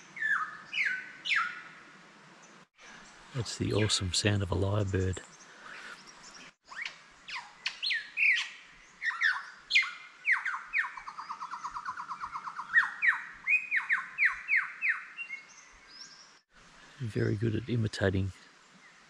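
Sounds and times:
lyrebird singing: 0:00.1 - 0:01.7, 0:03.0 - 0:16.4.

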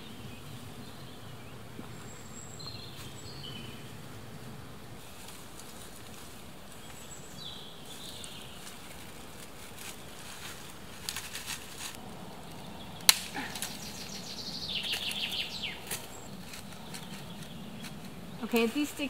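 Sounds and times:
dry twigs crackling and snapping: 0:07.8 - 0:18.9.

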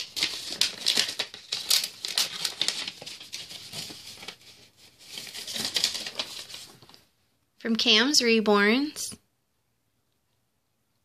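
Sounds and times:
paper envelope rustling: 0:00.0 - 0:07.1.

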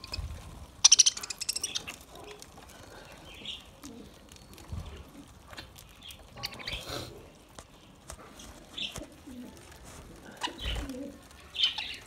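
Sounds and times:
budgerigars chirping: 0:00.8 - 0:02.0.

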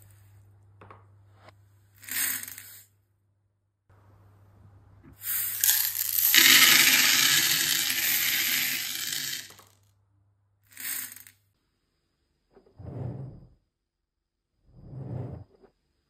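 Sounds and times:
plastic beads clattering onto plate: 0:05.3 - 0:09.8, 0:10.8 - 0:11.3.

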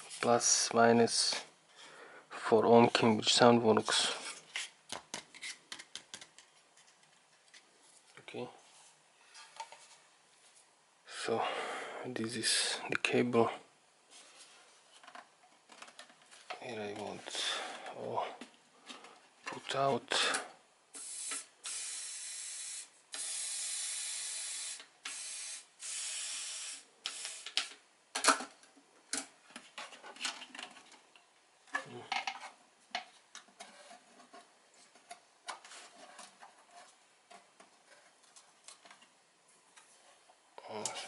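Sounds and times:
hissing spray bursts: 0:21.0 - 0:27.6.

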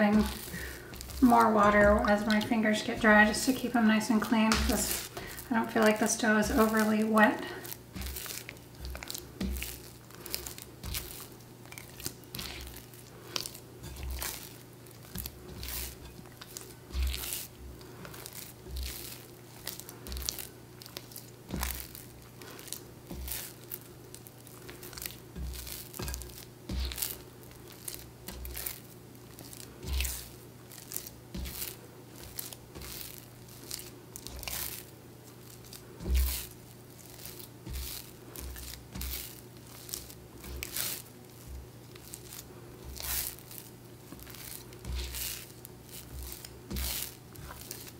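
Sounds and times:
dough thumping in bowl: 0:00.0 - 0:23.8, 0:35.6 - 0:47.9
dough squelching and tearing: 0:00.0 - 0:47.9.

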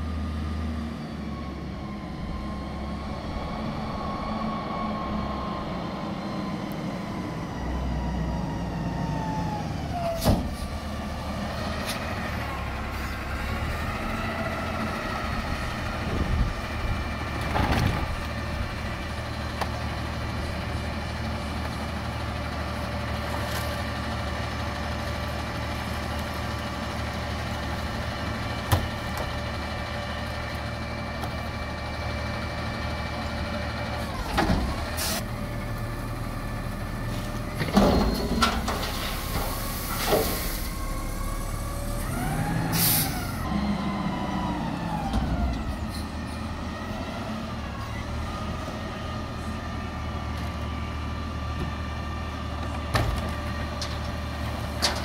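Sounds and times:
garbage truck diesel engine idling: 0:18.3 - 0:39.8.

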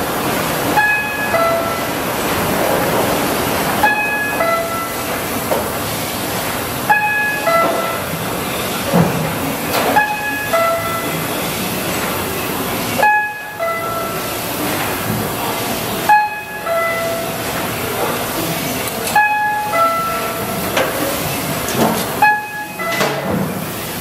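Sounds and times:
printing press hiss and hum: 0:00.0 - 0:24.0
two-note electronic warning chime: 0:00.8 - 0:01.9, 0:03.8 - 0:05.0, 0:06.9 - 0:08.1, 0:10.0 - 0:11.2, 0:13.0 - 0:14.3, 0:16.1 - 0:17.4, 0:19.1 - 0:20.4, 0:22.2 - 0:23.2.

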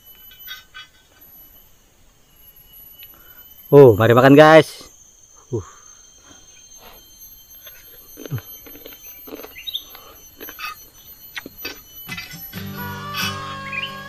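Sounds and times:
faint steady high tone: 0:00.0 - 0:14.0
chewing: 0:07.6 - 0:11.9.

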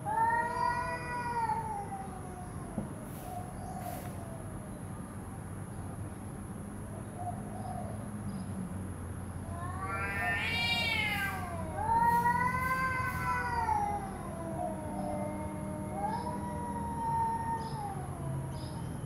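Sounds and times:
cats yowling: 0:00.0 - 0:04.5, 0:09.4 - 0:18.9.

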